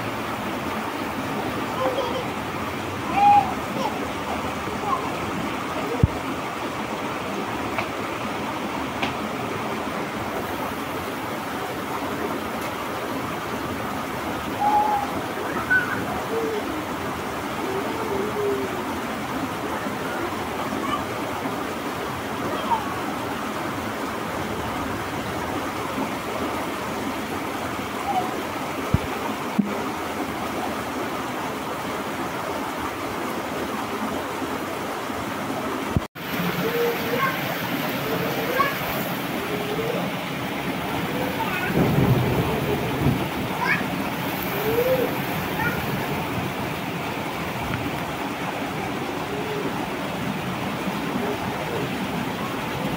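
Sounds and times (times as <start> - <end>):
rain and running water: 0.0 - 52.9
stream rushing over rocks: 0.0 - 52.9.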